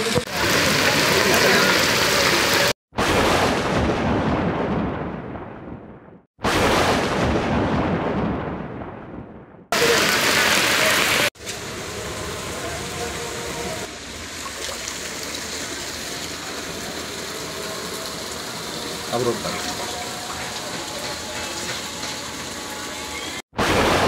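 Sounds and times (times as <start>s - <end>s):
heavy rain on flooded street: 0.0s - 2.8s, 9.8s - 24.0s.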